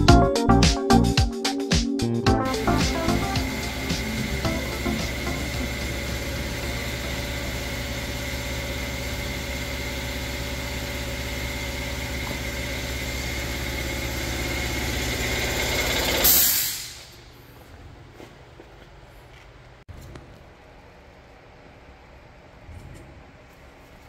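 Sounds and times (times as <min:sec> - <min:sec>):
steady mechanical drone: 0:02.3 - 0:17.6
short burst of hiss: 0:16.3 - 0:17.2.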